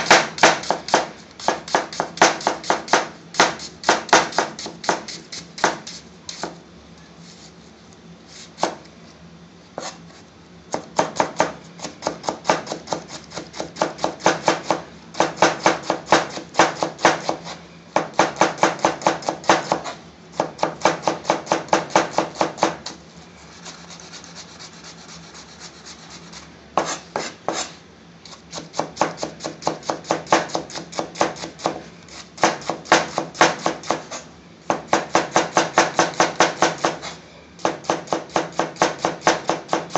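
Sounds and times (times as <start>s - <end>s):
knife chopping on plastic board: 10.7s - 22.8s.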